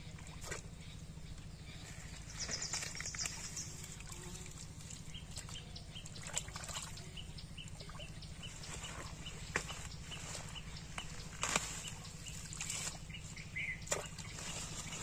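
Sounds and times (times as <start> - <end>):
steady low hum: 0.0 - 15.0
water splashing: 2.4 - 15.0
leaves rustling: 8.5 - 15.0.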